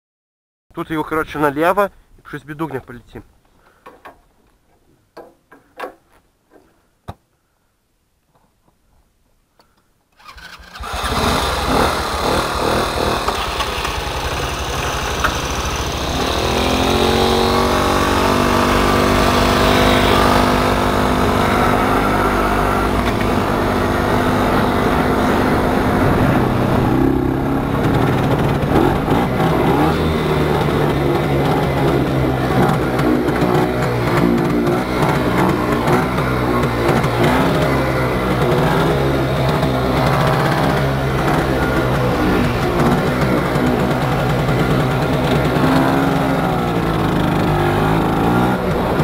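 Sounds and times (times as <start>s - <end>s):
motorcycle engine revving: 10.2s - 49.0s
rush of riding: 10.2s - 49.0s.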